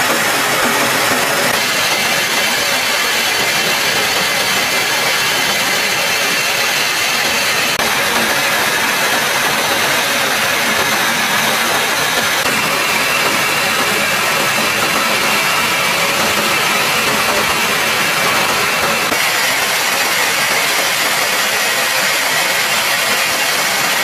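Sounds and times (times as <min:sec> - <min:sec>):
jet aircraft engine and airflow hiss: 0:00.0 - 0:24.0.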